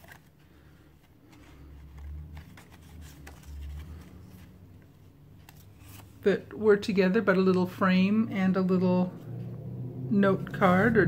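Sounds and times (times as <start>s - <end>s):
card pieces rustling: 0.0s - 6.2s
low rumble: 7.8s - 11.0s.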